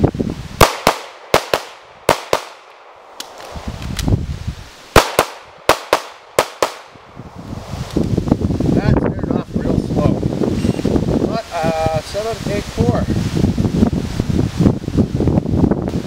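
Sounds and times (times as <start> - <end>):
pistol shots: 0.6 - 3.4, 4.9 - 7.0.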